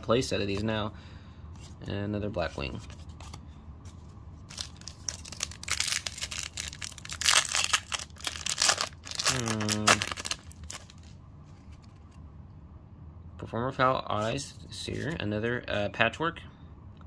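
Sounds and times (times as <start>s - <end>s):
foil wrapper tearing and crinkling: 4.5s - 11.1s.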